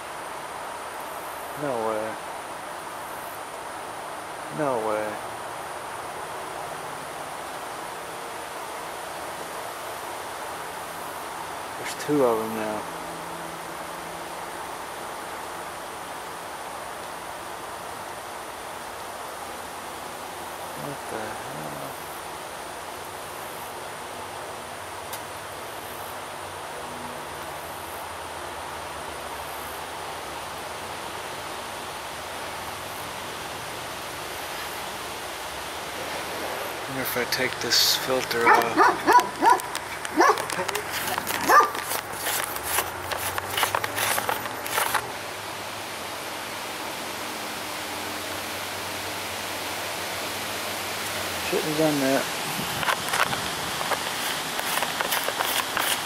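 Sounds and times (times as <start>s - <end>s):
outdoor background hiss: 0.0s - 56.0s
dog barking: 38.4s - 40.6s, 41.4s - 41.8s.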